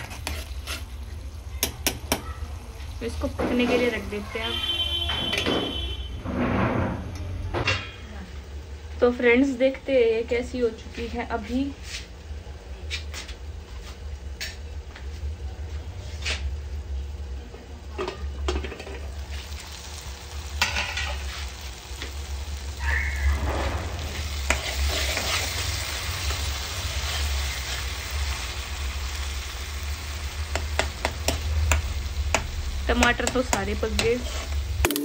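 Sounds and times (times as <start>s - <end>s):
food sizzling: 0.0s - 6.2s, 16.0s - 35.0s.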